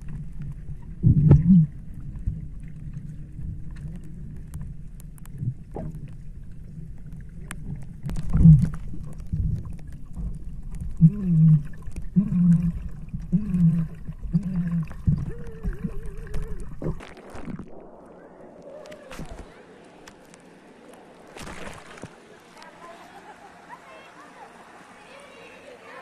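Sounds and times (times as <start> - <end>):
underwater rumble and bubbles: 0.0 - 22.2
muffled underwater calls: 11.0 - 21.4.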